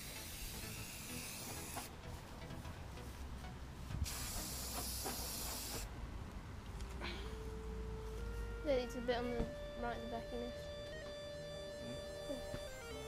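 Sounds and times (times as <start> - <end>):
spray paint can hissing: 0.0 - 1.9, 4.0 - 5.9.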